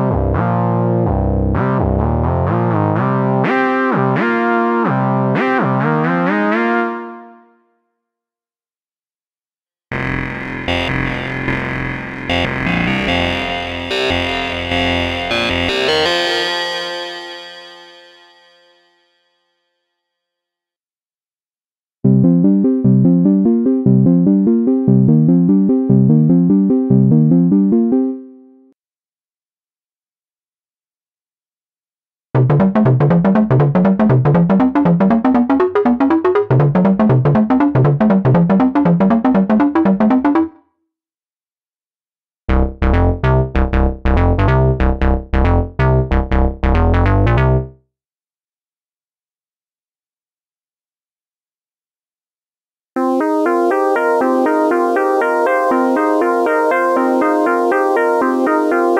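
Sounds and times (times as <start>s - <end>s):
synthesizer notes repeating run: 9.9s - 16.4s, 32.4s - 40.6s, 42.5s - 47.7s, 53.0s - 58.9s.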